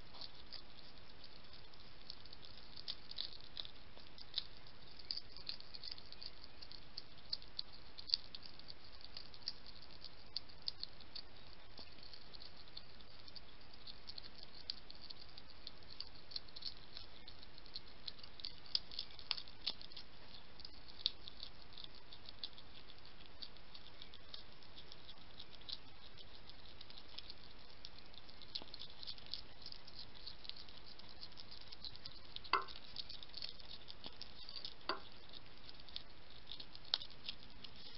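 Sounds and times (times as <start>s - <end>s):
hedgehogs crunching dry food: 0.0s - 37.9s
steady hiss: 20.0s - 37.9s.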